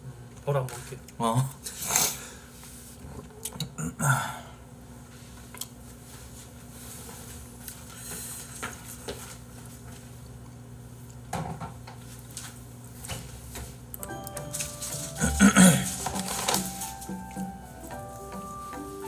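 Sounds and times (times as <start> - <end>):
low room hum: 0.0 - 19.0
plastic containers clattering: 15.0 - 17.1.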